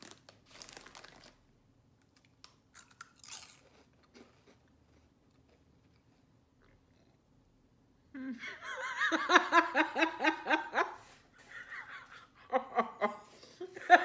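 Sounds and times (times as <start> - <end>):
woman laughing hard: 8.2 - 14.0.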